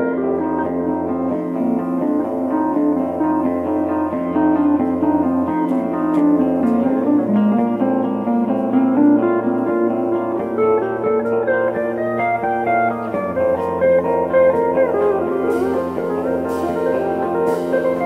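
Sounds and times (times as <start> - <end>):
bass note: 0.0 - 18.0
electric guitar: 0.0 - 18.0
pedal steel guitar: 0.0 - 18.0.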